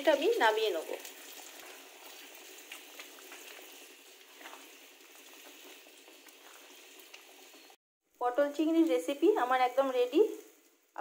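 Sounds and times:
curry bubbling in a pan: 0:00.0 - 0:07.8.

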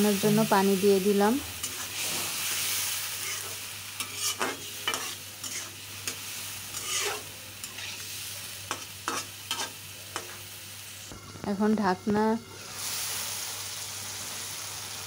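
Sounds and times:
potatoes sizzling: 0:00.0 - 0:15.0
metal spatula scraping pan: 0:01.6 - 0:08.1, 0:08.7 - 0:10.4.

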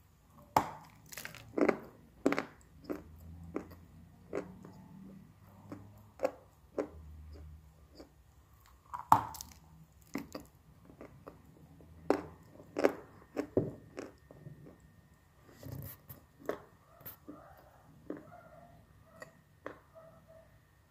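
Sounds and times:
clay being bitten and chewed: 0:00.8 - 0:14.9.

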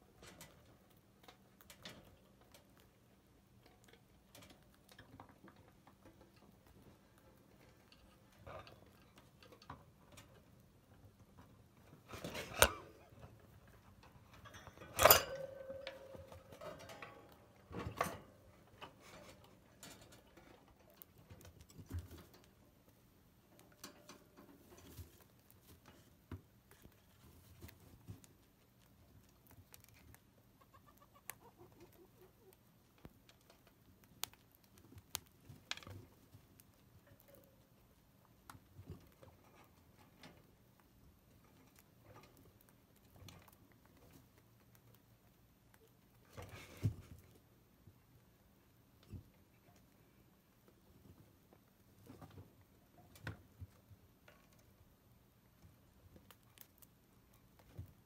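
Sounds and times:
chinchillas gnawing wood: 0:18.5 - 0:47.4.

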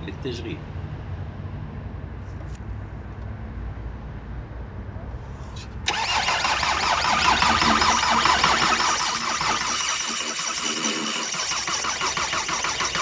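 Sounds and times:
diesel engine running loudly: 0:05.9 - 0:13.0
starter motor cranking: 0:05.9 - 0:13.0.

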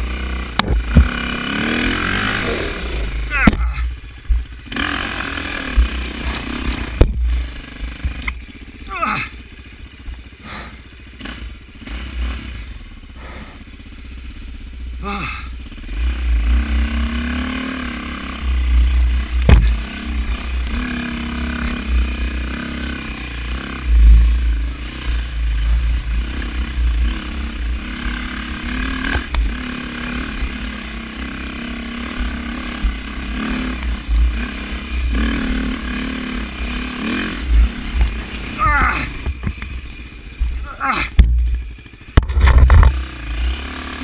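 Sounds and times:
dirt bike engine: 0:00.0 - 0:44.0
low rumble of bike over ground: 0:00.0 - 0:44.0
sharp knocks: 0:19.4 - 0:19.8.

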